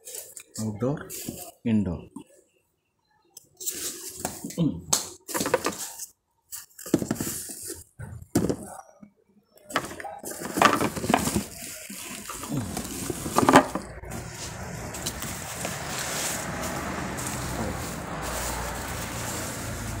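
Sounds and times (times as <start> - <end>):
plastic packaging rustling: 5.3 - 8.7, 9.7 - 20.0.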